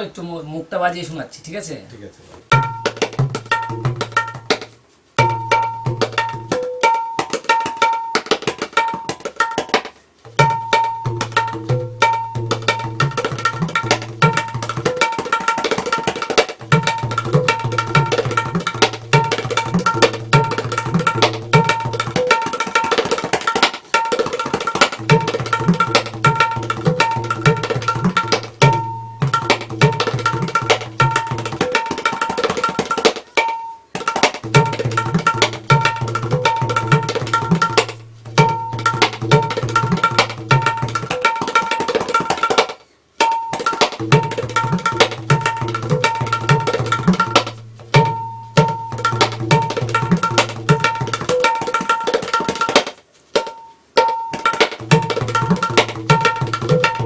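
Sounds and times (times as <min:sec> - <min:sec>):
tabla bass drum booming strokes: 0:02.5 - 0:04.6, 0:05.2 - 0:06.7, 0:10.3 - 0:15.1, 0:16.6 - 0:22.4, 0:24.9 - 0:31.8, 0:34.4 - 0:41.2, 0:44.0 - 0:51.4
tabla high drum rapid strokes: 0:02.5 - 0:57.0.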